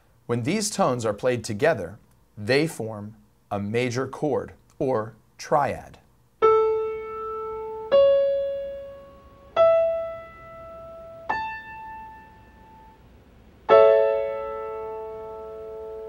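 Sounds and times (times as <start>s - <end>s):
piano notes and chord: 6.4s - 16.0s.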